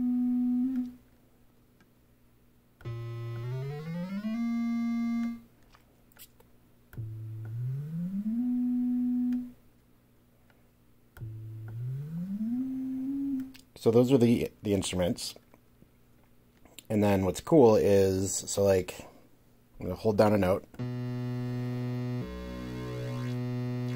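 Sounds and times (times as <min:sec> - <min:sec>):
synthesizer notes sliding up: 0:02.8 - 0:05.4, 0:07.0 - 0:09.6, 0:11.2 - 0:13.6, 0:20.8 - 0:23.9.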